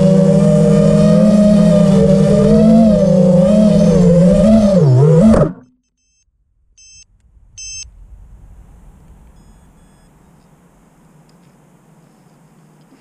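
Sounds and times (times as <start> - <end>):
drone motors buzzing: 0.0 - 5.7
short high electronic beeps: 5.6 - 7.9, 9.4 - 10.1.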